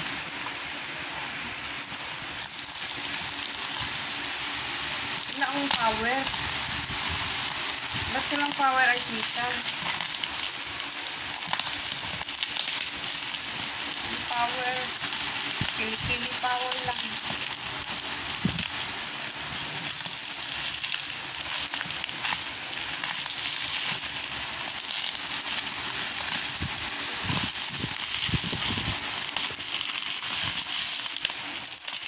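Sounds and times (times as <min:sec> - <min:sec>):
plastic wrap crackling: 0:00.0 - 0:32.0.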